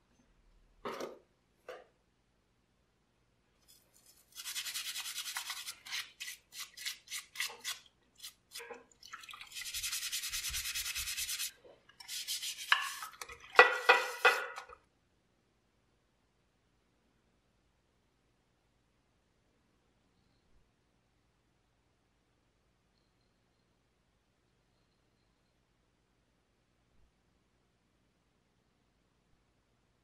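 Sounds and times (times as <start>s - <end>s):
scrubbing in soapy water: 4.2s - 8.7s.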